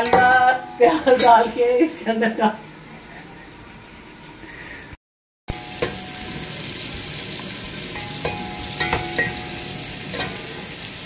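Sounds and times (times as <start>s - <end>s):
onions sizzling in oil: 5.5s - 11.0s
spatula knocking against pot: 8.0s - 10.4s.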